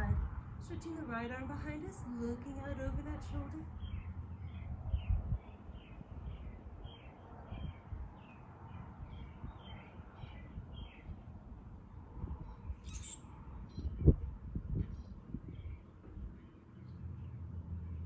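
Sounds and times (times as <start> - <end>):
low steady rumble: 0.0 - 8.2
small bird chirping: 12.5 - 14.2.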